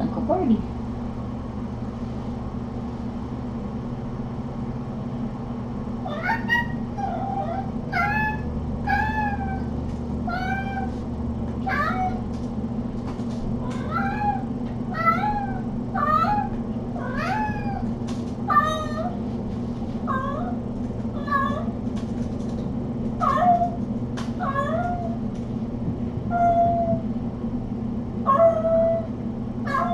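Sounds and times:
steady low hum: 0.0 - 29.9
kitten mewing: 6.1 - 9.7.

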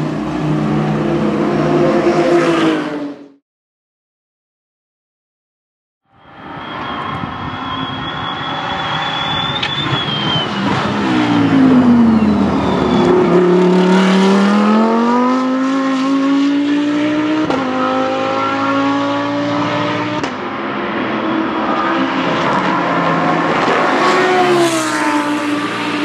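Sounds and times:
race car engine braking and accelerating: 6.4 - 26.0.

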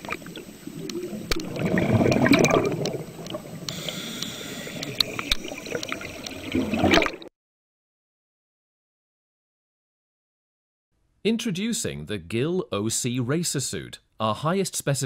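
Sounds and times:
underwater bubbling: 0.0 - 7.3.

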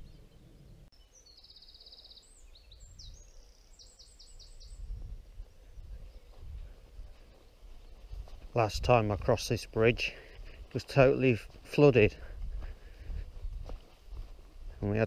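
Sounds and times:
songbird trilling song: 0.0 - 8.2.

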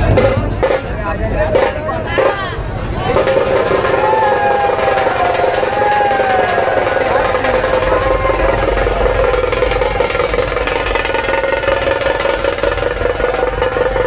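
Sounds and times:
barrel drums beaten fast: 0.0 - 14.0
steady held tone: 0.0 - 14.0.

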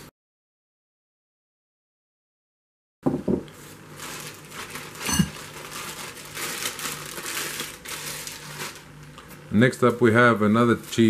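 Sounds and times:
plastic wrapping crinkling: 3.6 - 9.4, 10.0 - 11.0.

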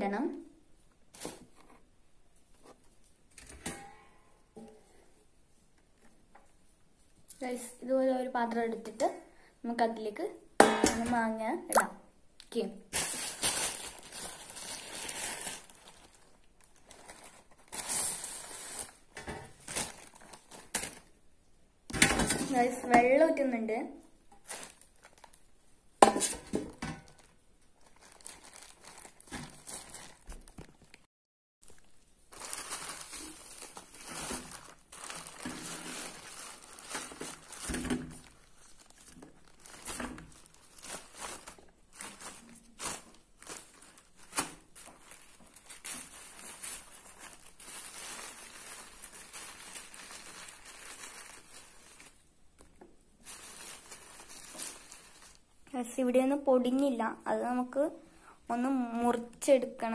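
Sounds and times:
plastic bag crinkling: 12.9 - 21.2, 24.3 - 55.6.

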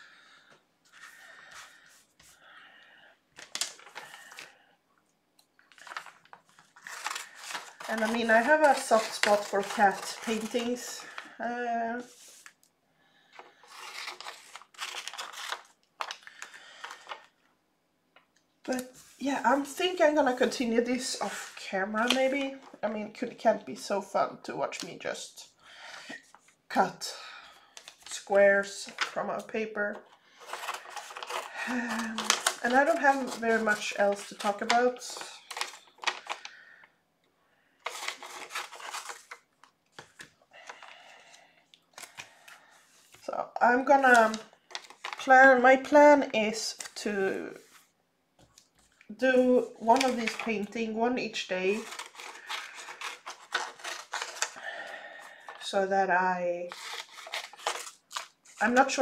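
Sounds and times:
paper rustling and crinkling: 3.4 - 4.6, 5.6 - 11.4, 13.2 - 17.3, 27.6 - 36.6, 37.8 - 41.1, 41.8 - 43.2, 43.9 - 46.0, 46.6 - 50.8, 51.5 - 55.7, 56.7 - 59.0
scissors cutting paper: 51.7 - 54.5, 56.7 - 57.9.

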